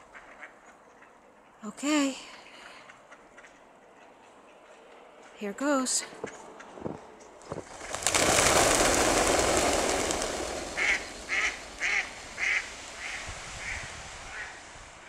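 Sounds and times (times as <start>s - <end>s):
ducks wingbeats taking off: 7.5s - 15.0s
duck quacks: 10.8s - 14.5s.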